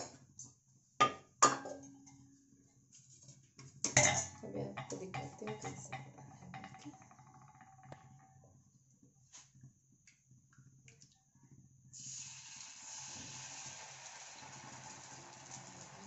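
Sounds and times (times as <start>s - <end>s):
batter sizzling on hot pan: 11.9s - 16.0s.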